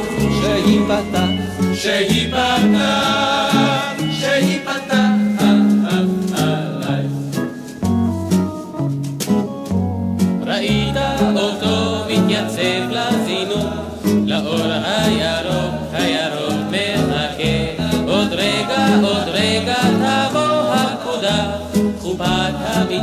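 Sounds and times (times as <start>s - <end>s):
stepping bass line: 0.0s - 4.4s
wavering melody line: 0.0s - 7.0s
plucked strings: 0.0s - 23.0s.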